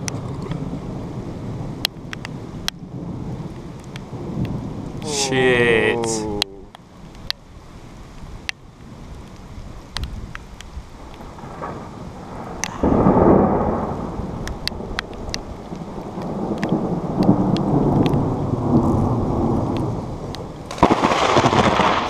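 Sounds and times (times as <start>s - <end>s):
rolling thunder: 11.3s - 22.0s.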